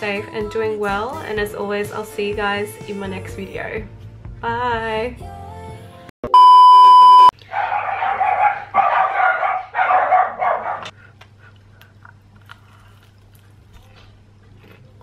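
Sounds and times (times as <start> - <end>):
test tone beep: 6.2 - 7.3.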